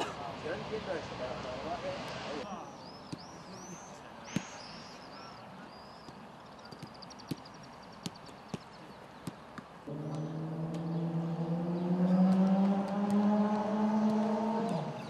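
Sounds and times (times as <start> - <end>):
high chirping bird calls: 2.4 - 15.0
footballs being kicked: 5.7 - 11.0.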